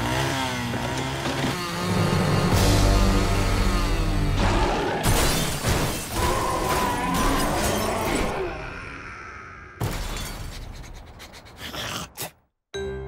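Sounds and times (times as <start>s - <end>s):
cartoon crash with breaking glass: 5.0s - 8.3s.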